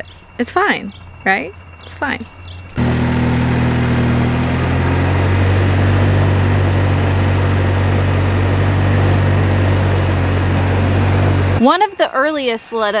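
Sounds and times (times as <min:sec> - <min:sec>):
atv engine running: 0:02.4 - 0:11.6.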